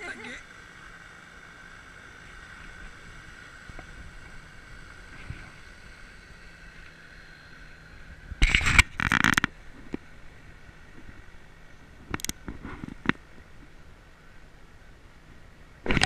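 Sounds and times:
faint background hum: 0.0 - 16.0
rubbing bumps against camera: 12.4 - 13.1.

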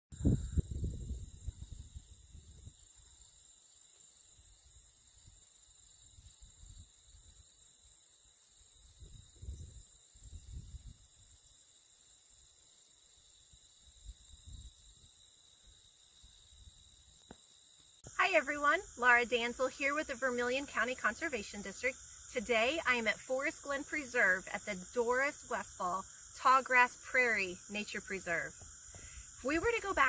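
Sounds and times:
wind gusts on microphone: 0.2 - 2.8, 9.0 - 11.1
insects chorus: 0.2 - 30.0.

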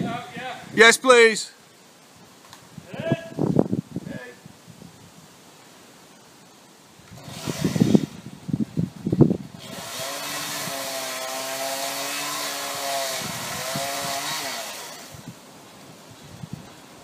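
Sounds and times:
chainsaw cutting at high revs: 7.1 - 8.2, 9.6 - 15.4.

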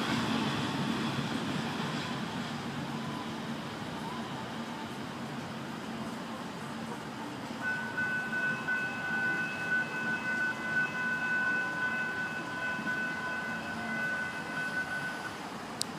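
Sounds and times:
freight train rumble: 0.0 - 15.9
high-pitched crossing bell tone: 7.6 - 15.3.

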